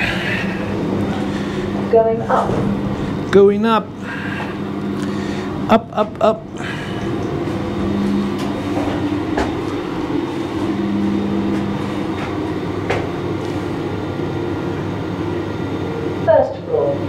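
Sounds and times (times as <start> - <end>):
lift humming: 0.0 - 17.0.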